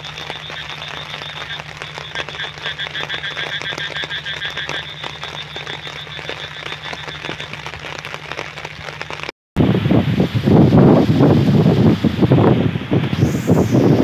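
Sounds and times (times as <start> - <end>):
frogs trilling chorus: 0.0 - 9.0.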